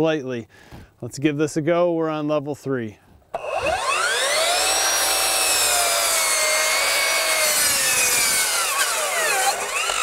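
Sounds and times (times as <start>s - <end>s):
miter saw motor whine: 3.3s - 10.0s
saw blade cutting wood: 3.4s - 10.0s.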